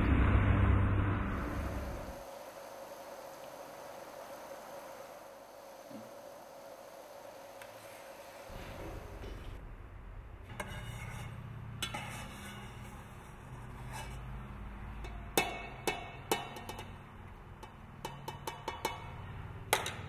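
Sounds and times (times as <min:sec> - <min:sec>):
steady low hum: 0:00.0 - 0:20.0
metal spoon scraping enamel pots: 0:10.5 - 0:20.0.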